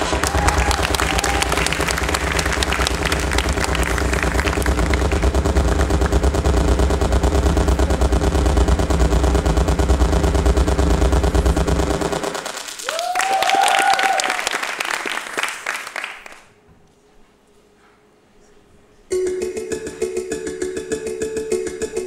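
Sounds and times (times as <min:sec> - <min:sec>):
rising sweep: 0:00.0 - 0:12.8
sustained low tones: 0:00.0 - 0:12.8
fast percussive hits: 0:00.0 - 0:14.0, 0:19.1 - 0:22.0.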